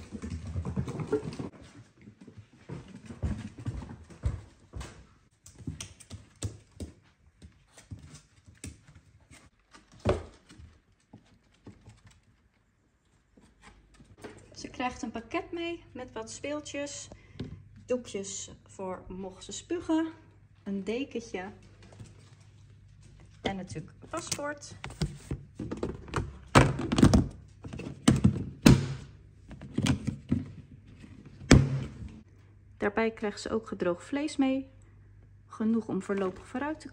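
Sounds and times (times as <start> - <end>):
puppy paws on wooden floor: 0.0 - 14.4.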